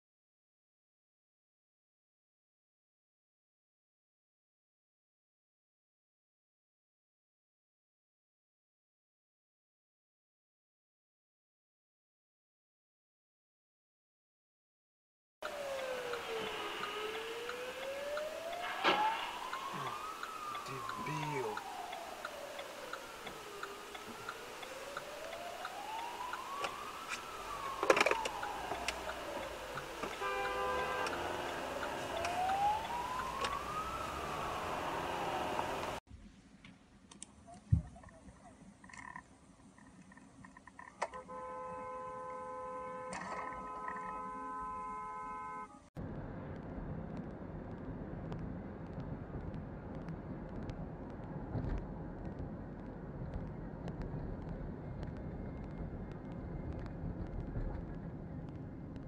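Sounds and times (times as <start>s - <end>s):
steady ticking: 15.4s - 18.7s, 19.4s - 30.2s
emergency vehicle siren wailing: 15.4s - 36.0s
car cabin road rumble: 15.4s - 41.0s, 46.0s - 59.0s.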